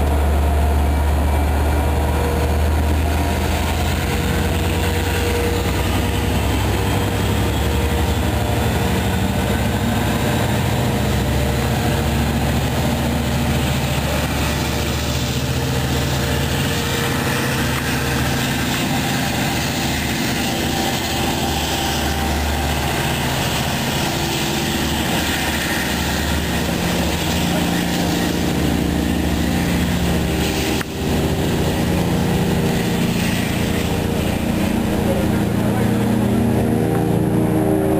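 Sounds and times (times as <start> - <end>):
locomotive diesel engine drone: 0.0 - 37.9.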